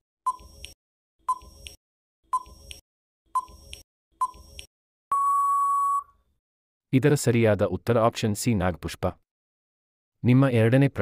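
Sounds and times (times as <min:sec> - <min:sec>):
short beeps: 0:05.1 - 0:06.1.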